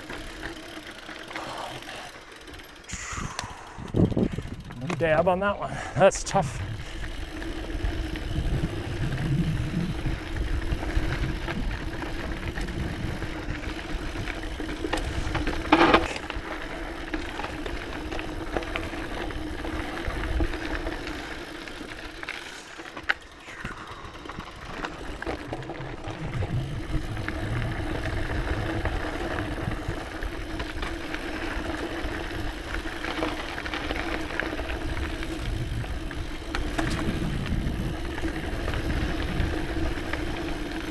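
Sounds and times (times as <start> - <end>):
bike rattle: 0.0 - 40.9
bike tyres rolling over dirt: 0.0 - 40.9
rumbling wind noise: 2.9 - 5.1, 5.8 - 16.5, 23.4 - 30.9, 34.6 - 40.9.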